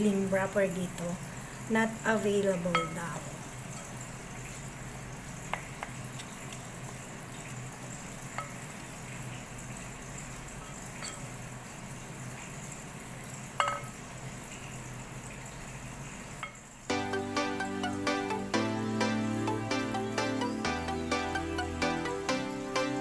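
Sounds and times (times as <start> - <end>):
spoon clinking against glass: 2.7 - 3.0, 11.0 - 11.3, 13.6 - 14.0
spoon stirring filling: 2.7 - 4.6.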